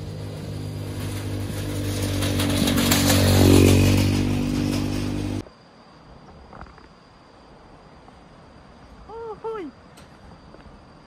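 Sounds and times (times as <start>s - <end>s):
motor scooter engine passing: 0.0s - 5.4s.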